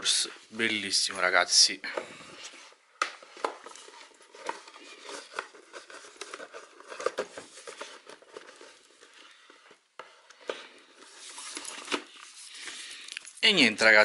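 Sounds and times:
cardboard box rustling: 3.4 - 9.2.

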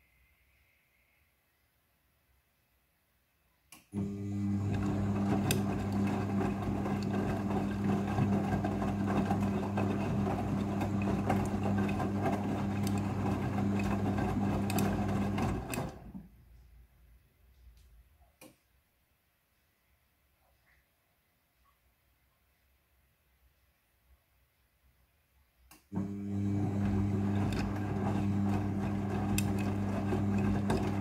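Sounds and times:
washing machine drum humming: 4.0 - 16.2, 26.0 - 31.0
wet laundry tumbling: 4.4 - 16.0, 26.3 - 31.0.

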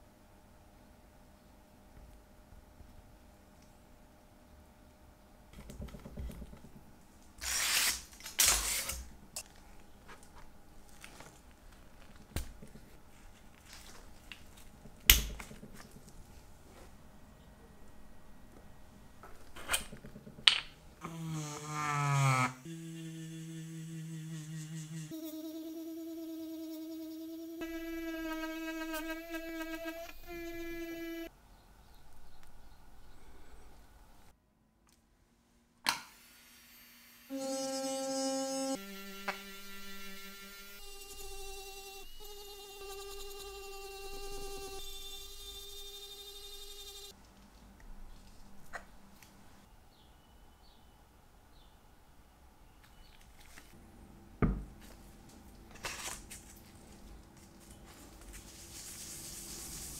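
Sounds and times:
rotary tool grinding whine: 36.3 - 47.1.

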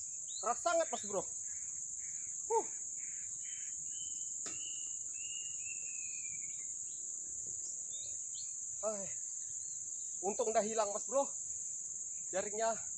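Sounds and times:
high-pitched insect chorus: 0.0 - 12.9
thin whistles: 3.9 - 6.7.

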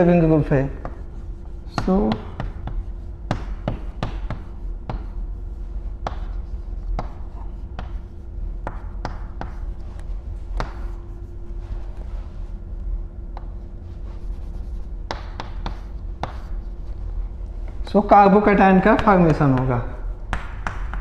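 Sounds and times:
chalk scratching on chalkboard: 0.0 - 12.1, 13.4 - 17.0
chalk tapping on chalkboard: 0.3 - 11.2, 13.3 - 16.8, 18.6 - 21.0.

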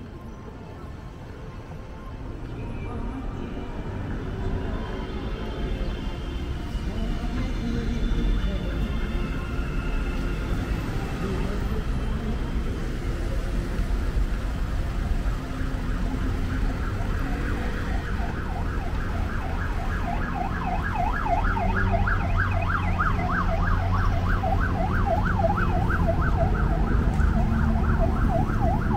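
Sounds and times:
low rumble of street traffic: 0.0 - 28.9
emergency siren yelping: 14.4 - 28.9.

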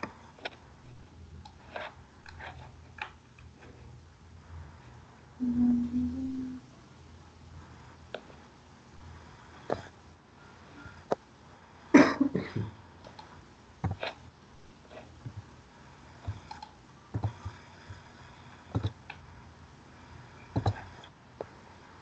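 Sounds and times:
computer mouse clicks: 13.0 - 14.2, 16.2 - 18.1, 18.7 - 19.2, 20.5 - 21.6.

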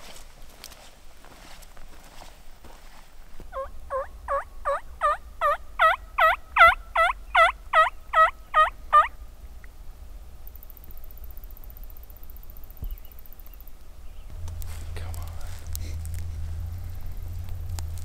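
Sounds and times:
turkey call hen yelps: 3.5 - 9.2.

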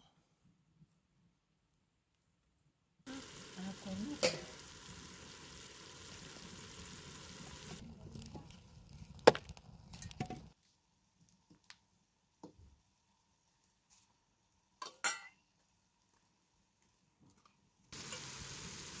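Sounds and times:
onions frying: 3.1 - 10.6, 17.9 - 19.0
wood fire crackling: 3.1 - 10.6, 11.2 - 12.1, 15.9 - 19.0.

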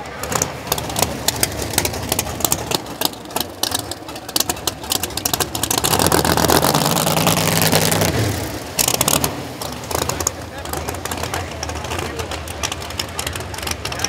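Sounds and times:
race car engine running: 0.0 - 14.0
rapid engine pops: 0.0 - 14.0.

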